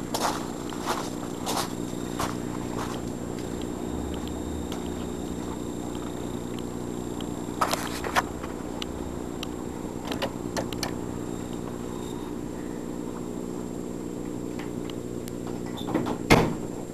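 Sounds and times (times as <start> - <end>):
low mechanical hum: 0.0 - 16.9
sharp clicks: 8.8 - 11.6.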